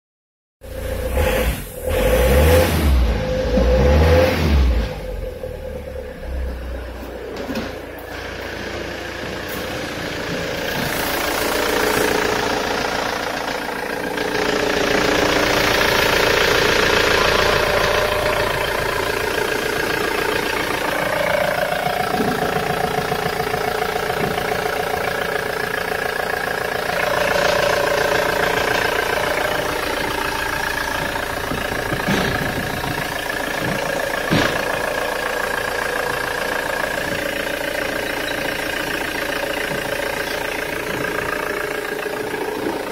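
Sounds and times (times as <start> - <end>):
diesel engine idling: 0.6 - 42.9.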